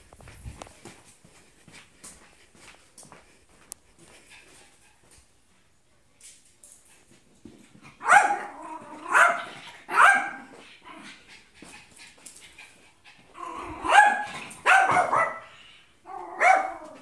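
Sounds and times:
small dog barking: 0:08.0 - 0:10.5, 0:13.8 - 0:15.5, 0:16.1 - 0:17.0.

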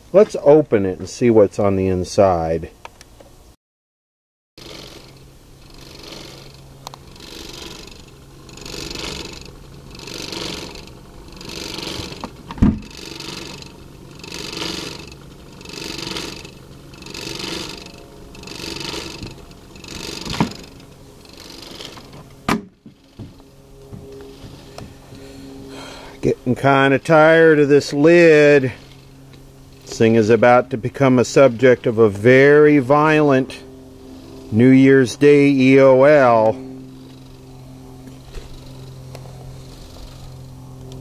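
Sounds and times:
steady hum: 0:04.6 - 0:41.0
sharp knocks: 0:22.5 - 0:25.0.

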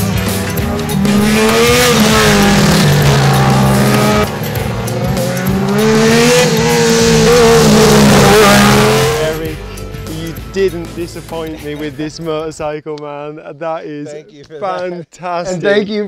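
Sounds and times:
motorcycle engine revving: 0:00.0 - 0:09.7.

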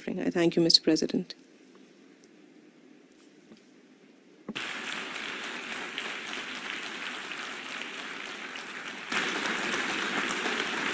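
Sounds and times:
audience applauding: 0:04.5 - 0:10.9.

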